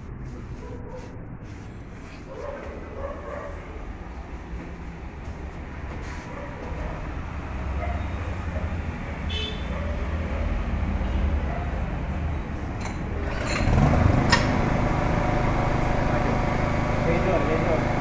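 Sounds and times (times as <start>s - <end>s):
portable generator engine running: 13.2s - 18.0s.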